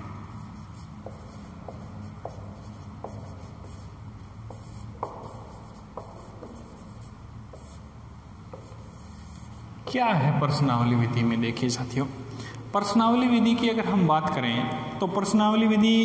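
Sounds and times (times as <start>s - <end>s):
marker squeaking on whiteboard: 0.4s - 7.9s, 8.5s - 10.0s.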